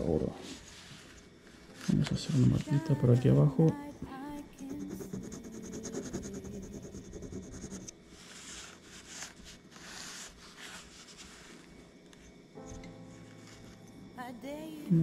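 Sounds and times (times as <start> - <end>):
rubbing and handling sounds: 4.6 - 12.4
ring scratching on stone: 4.7 - 11.6.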